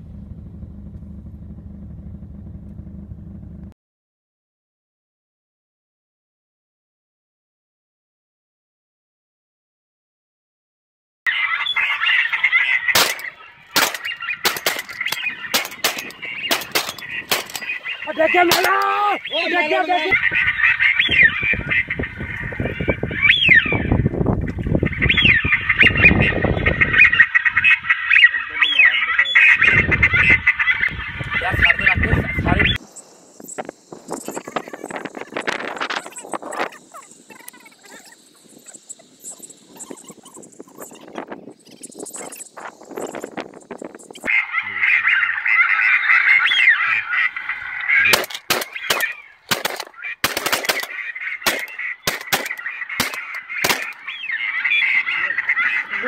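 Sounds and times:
low rumble: 0.0 - 3.8
ducks and geese honking: 11.3 - 32.8, 42.2 - 56.0
shotgun shots: 12.9 - 19.0, 48.0 - 54.0.

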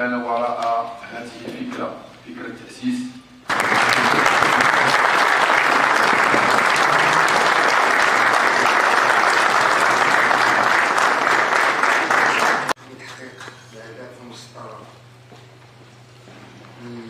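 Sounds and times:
crowd applauding: 3.5 - 12.8.

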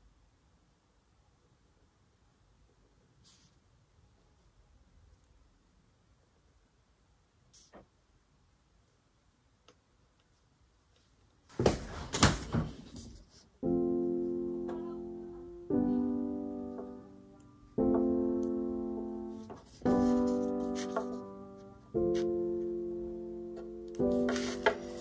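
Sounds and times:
soft piano chords: 13.6 - 25.0.

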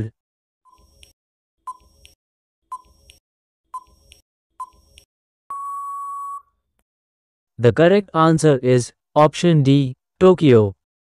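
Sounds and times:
steady beep: 5.5 - 6.5.

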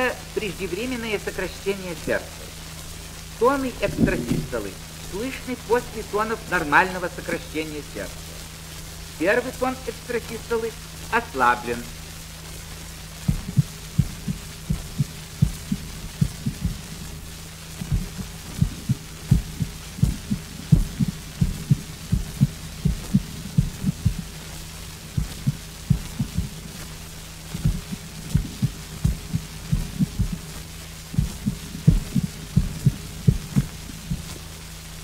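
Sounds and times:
record surface hiss: 0.0 - 35.0
heartbeat thuds: 3.8 - 4.9, 13.2 - 34.4.

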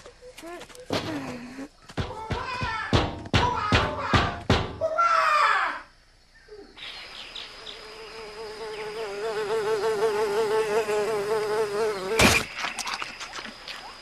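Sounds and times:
cartoon fly buzzing: 7.6 - 12.5.

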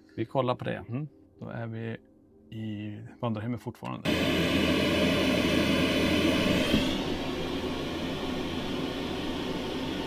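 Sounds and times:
low hum: 4.1 - 10.0.

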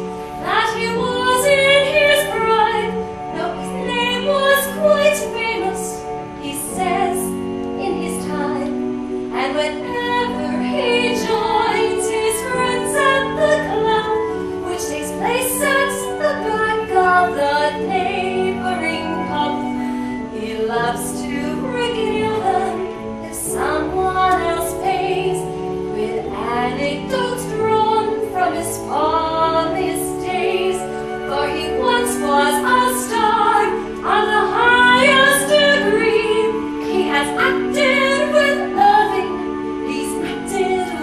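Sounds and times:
musical accompaniment: 0.0 - 41.0
woman singing: 0.0 - 41.0.

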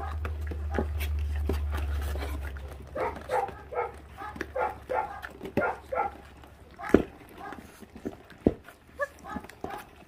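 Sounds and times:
puppies yapping and snarling: 0.0 - 10.0.

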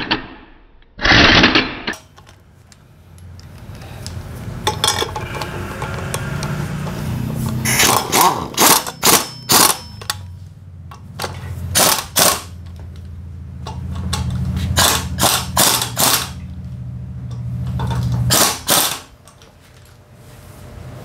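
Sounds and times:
steady low hum: 2.0 - 21.0
pneumatic impact wrench bursts: 4.7 - 10.2, 11.7 - 12.6, 14.7 - 16.4, 17.8 - 19.2.

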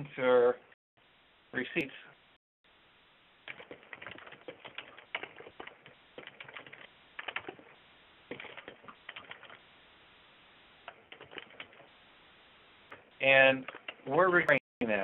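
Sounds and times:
typing on a keyboard: 3.5 - 7.6, 8.3 - 9.6, 10.9 - 11.8.

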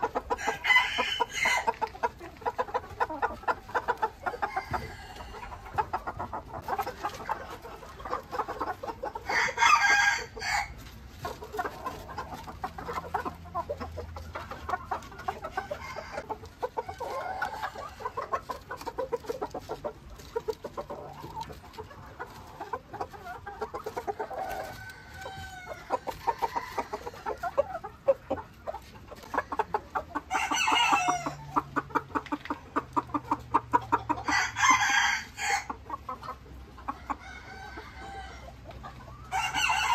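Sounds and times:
chickens clucking: 0.0 - 39.9
rooster crowing: 0.4 - 1.7, 4.4 - 5.5, 9.3 - 10.8, 34.3 - 35.7, 39.3 - 39.9.

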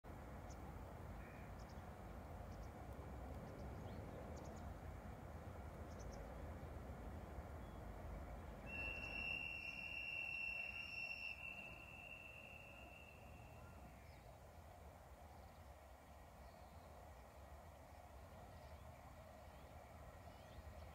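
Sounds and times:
distant train horn: 8.6 - 14.0.

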